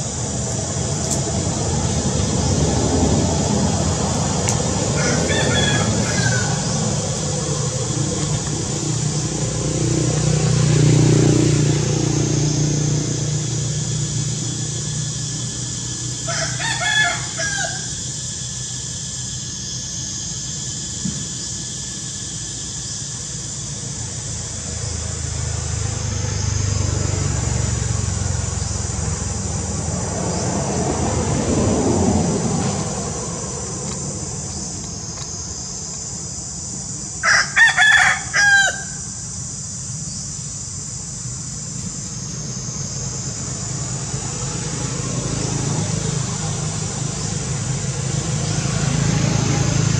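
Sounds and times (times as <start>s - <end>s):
high insect drone: 0.0s - 49.9s
rooster crowing: 4.7s - 7.4s, 15.8s - 18.3s, 37.2s - 39.2s.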